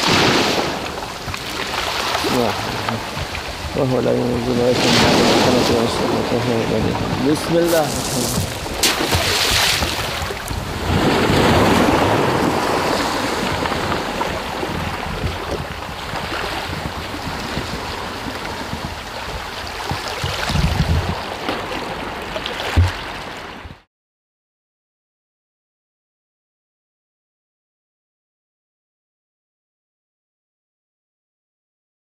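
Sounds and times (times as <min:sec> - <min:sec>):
waves washing over pebbles: 0:00.0 - 0:23.6
wind buffeting microphone: 0:00.0 - 0:23.8.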